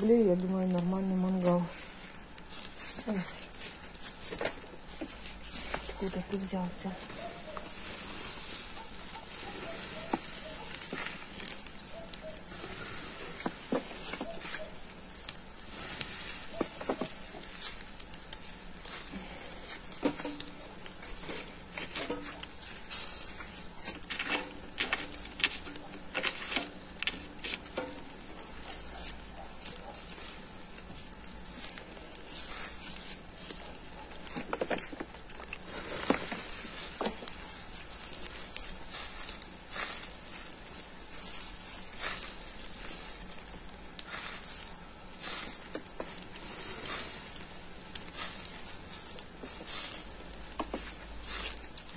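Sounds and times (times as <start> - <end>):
coals crackling and popping: 0.0 - 51.9
meat sizzling over charcoal: 0.0 - 51.9.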